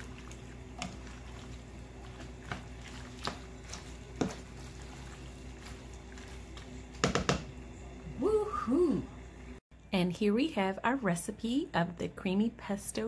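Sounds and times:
spoon stirring pasta in sauce: 0.0s - 7.6s.

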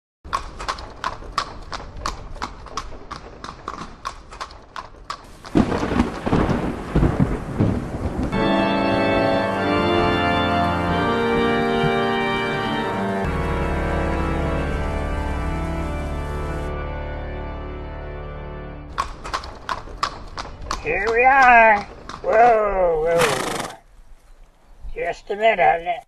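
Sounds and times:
horse hooves clip-clopping: 0.3s - 13.6s, 18.9s - 25.1s
thunder crash: 5.3s - 16.7s
organ chords: 8.0s - 19.0s.

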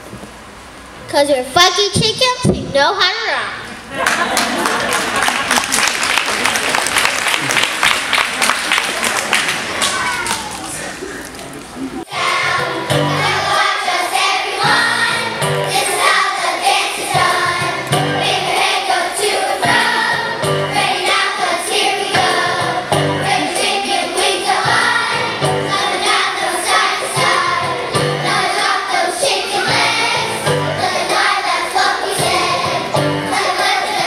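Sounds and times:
children's choir singing: 12.0s - 34.0s
instrumental accompaniment with bass: 12.1s - 13.7s, 14.6s - 16.0s, 17.1s - 18.7s, 19.6s - 28.8s, 29.8s - 31.4s, 32.2s - 33.8s.

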